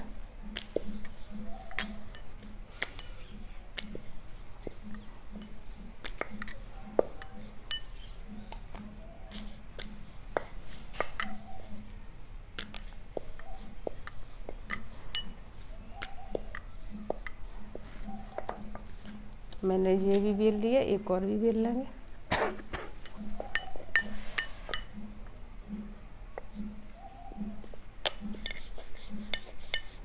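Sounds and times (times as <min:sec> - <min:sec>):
rolling pin rolling dough: 0:00.0 - 0:19.3, 0:27.5 - 0:30.0
bangles clinking: 0:00.0 - 0:19.4, 0:23.0 - 0:25.3, 0:27.5 - 0:30.0.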